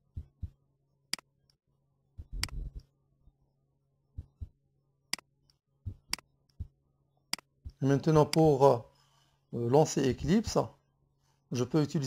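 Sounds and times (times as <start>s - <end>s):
computer mouse clicks: 2.4s - 2.9s.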